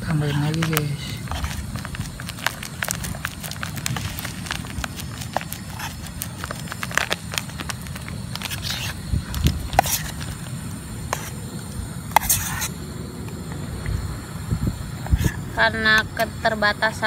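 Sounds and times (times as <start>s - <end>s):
plastic packet crinkling: 0.0s - 11.4s
steady low rumble: 0.0s - 17.0s.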